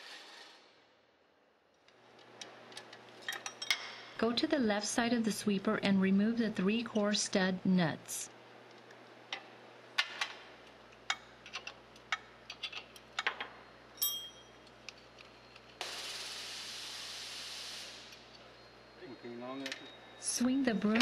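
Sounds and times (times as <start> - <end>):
ringing metallic clink: 14.0 - 14.6
steady hiss: 15.8 - 19.4.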